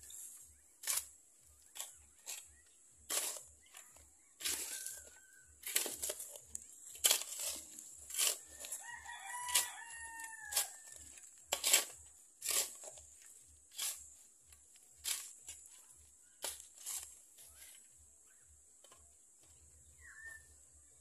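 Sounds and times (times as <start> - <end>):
hands scraping loose soil: 0.0 - 20.3
rooster crowing: 4.3 - 5.6, 8.4 - 11.3.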